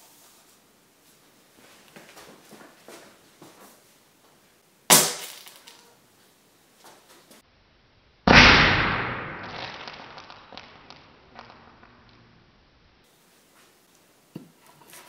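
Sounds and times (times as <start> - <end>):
sharp crack: 4.9 - 5.9, 8.2 - 12.3
explosive charge bang: 8.3 - 10.8.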